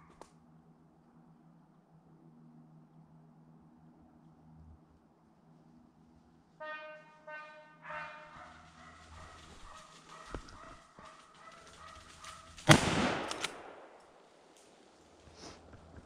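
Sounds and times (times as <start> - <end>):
rifle shot with echo: 12.6 - 14.2.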